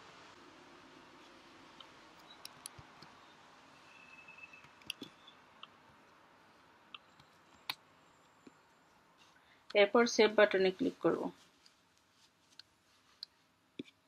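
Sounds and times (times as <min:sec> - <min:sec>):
low room hiss: 0:00.0 - 0:14.0
computer mouse clicks: 0:01.8 - 0:03.2, 0:04.6 - 0:05.8.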